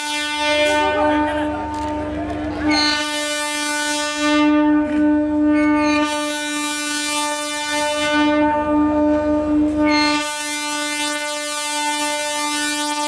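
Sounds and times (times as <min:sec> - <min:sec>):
train horn blast: 0:00.0 - 0:13.0.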